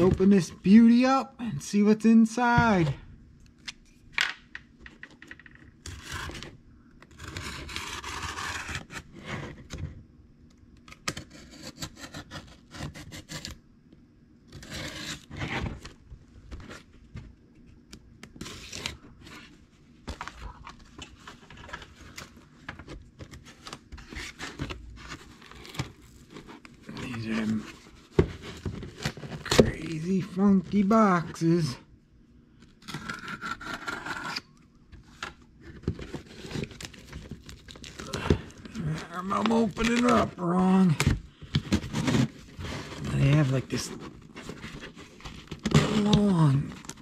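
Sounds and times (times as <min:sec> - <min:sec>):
knife cutting packing tape: 0:07.1 - 0:09.0, 0:14.5 - 0:15.3, 0:32.8 - 0:34.5
cardboard rubbing and tearing: 0:07.1 - 0:09.6, 0:14.5 - 0:15.8, 0:41.7 - 0:47.0.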